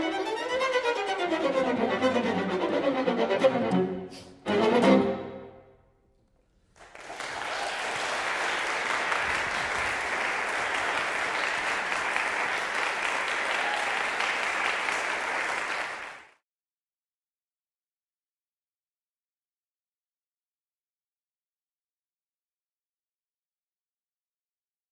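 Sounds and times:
audience applause: 6.6s - 16.4s.

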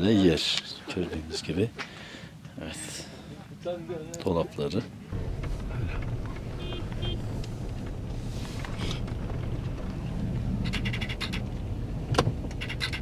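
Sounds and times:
road noise: 0.0s - 13.0s
car engine rumble: 4.9s - 13.0s.

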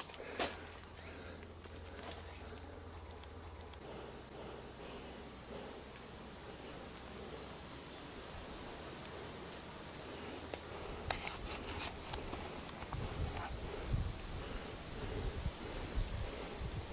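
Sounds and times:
insect trilling: 0.0s - 16.9s.

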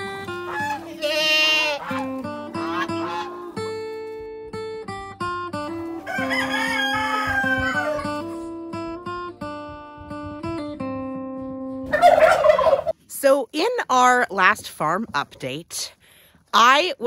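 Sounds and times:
acoustic guitar music: 0.0s - 11.9s
rooster crowing: 5.8s - 8.3s.

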